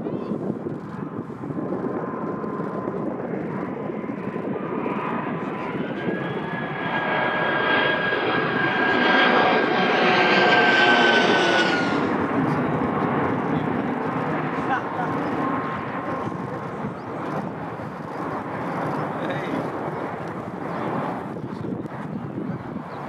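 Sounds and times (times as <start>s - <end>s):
jet aircraft flying overhead: 0.0s - 23.0s.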